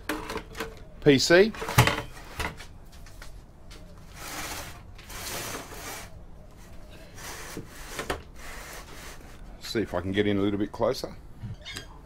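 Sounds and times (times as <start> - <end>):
rubbing and scraping handling noise: 1.4 - 9.9.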